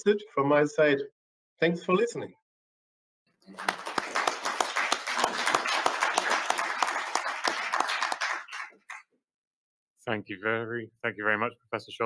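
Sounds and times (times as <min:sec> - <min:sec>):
audience applauding: 0:03.5 - 0:09.0.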